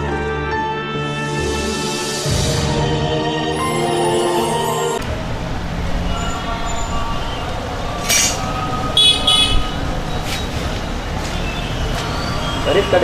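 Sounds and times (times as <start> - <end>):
road traffic rumble: 3.6 - 13.0.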